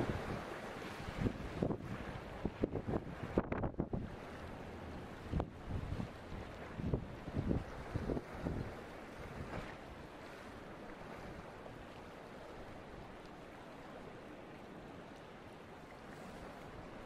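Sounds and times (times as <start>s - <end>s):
wind rumble on microphone: 0.0s - 10.4s
choppy sea water washing: 0.0s - 17.0s.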